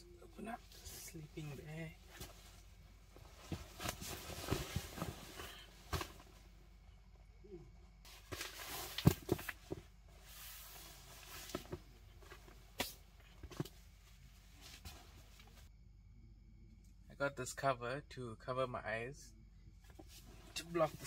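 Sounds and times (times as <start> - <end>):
sleeping bag fabric rustling: 0.8 - 6.5, 8.1 - 15.7.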